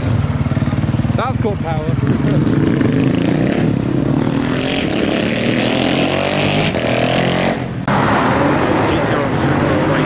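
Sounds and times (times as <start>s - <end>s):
car engine accelerating hard: 2.0s - 10.0s.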